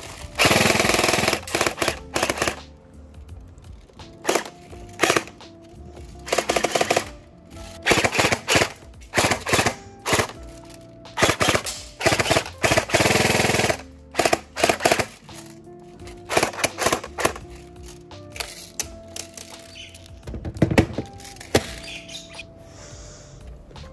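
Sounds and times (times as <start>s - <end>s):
airsoft rifle firing: 0.0s - 2.7s, 4.2s - 5.4s, 6.2s - 15.6s, 16.2s - 17.6s.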